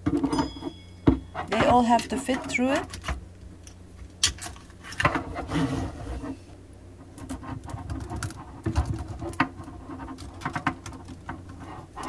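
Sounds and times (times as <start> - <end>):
metal hoses rubbing and scraping: 4.7 - 12.0.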